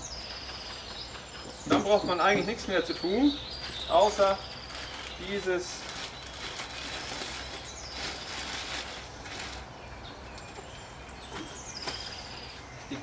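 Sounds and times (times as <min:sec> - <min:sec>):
plastic bag rustling: 0:03.6 - 0:09.8.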